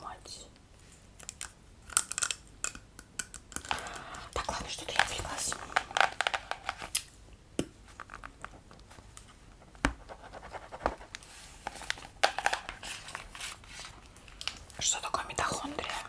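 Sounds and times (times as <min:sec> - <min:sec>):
sharp taps and scratches: 0:07.6 - 0:13.0
notebook pages flipping and rustling: 0:07.9 - 0:14.6.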